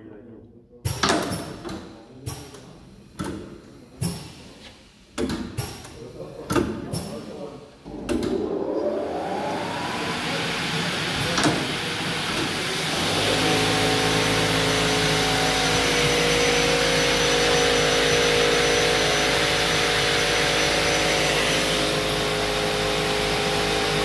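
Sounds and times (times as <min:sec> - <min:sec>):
motor low hum: 0:07.8 - 0:23.2
saw motor whine rising: 0:07.9 - 0:24.0.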